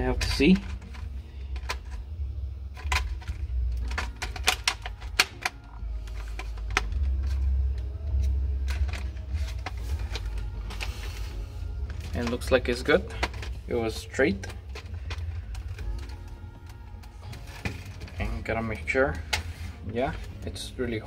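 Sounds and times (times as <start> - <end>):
low steady rumble: 0.0 - 21.0
plastic parts clicking and tapping: 0.1 - 2.1, 2.7 - 10.9, 11.8 - 13.7, 14.3 - 18.4.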